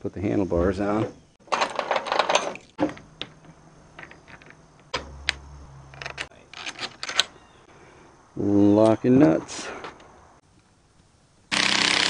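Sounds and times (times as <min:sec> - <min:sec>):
metal bolts clicking and clinking: 0:00.9 - 0:07.4.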